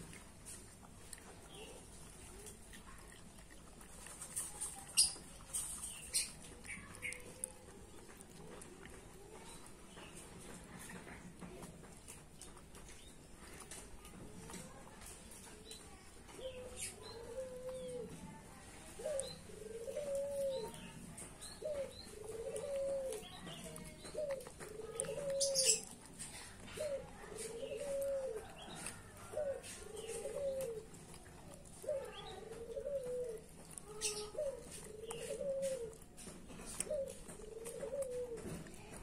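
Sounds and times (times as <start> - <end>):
dove cooing: 16.3 - 18.2, 18.8 - 39.0.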